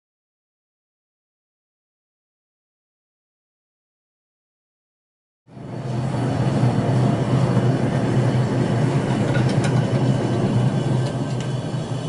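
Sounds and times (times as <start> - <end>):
gas forge burner roaring: 5.5 - 12.0.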